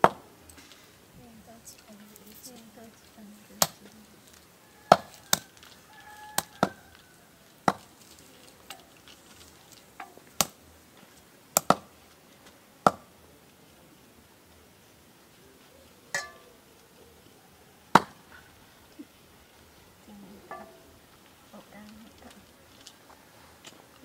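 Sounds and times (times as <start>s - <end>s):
cleaver chopping on wooden block: 11.6s - 11.9s, 12.9s - 13.1s.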